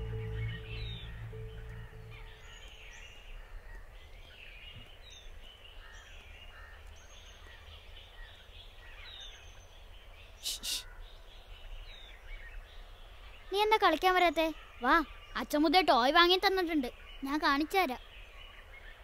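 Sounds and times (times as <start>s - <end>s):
held music tone: 0.0s - 2.9s
low background noise: 0.0s - 19.0s.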